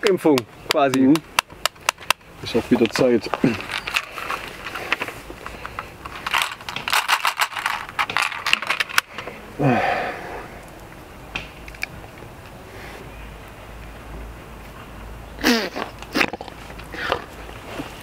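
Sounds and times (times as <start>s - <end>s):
pills rattling: 3.3s - 9.2s.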